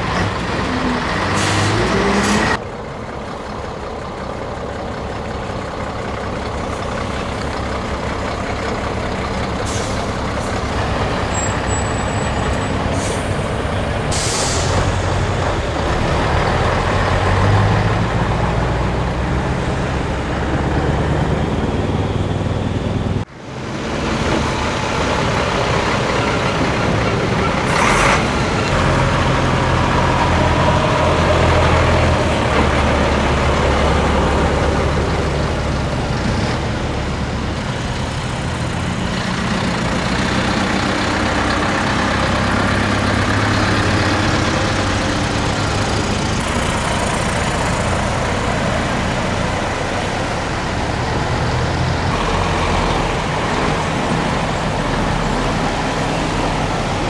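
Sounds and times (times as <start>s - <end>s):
truck diesel engines passing: 0.0s - 57.0s
air brake hisses: 1.3s - 2.4s, 9.6s - 10.1s, 12.9s - 15.0s.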